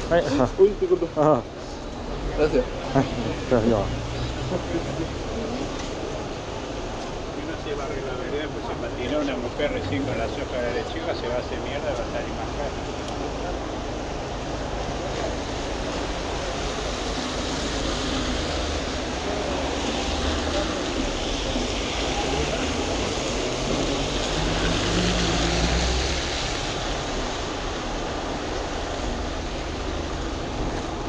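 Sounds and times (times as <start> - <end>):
traffic on wet road: 0.0 - 31.0
vehicle passing: 16.9 - 27.4.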